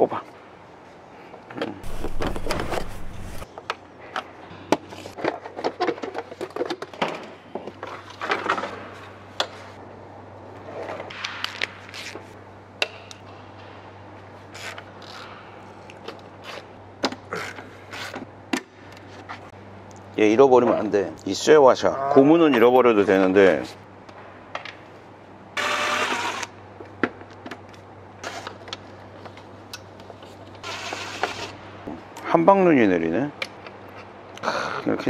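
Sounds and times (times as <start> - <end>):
low steady hum: 1.7 - 3.5
rumble of handling: 1.8 - 3.5.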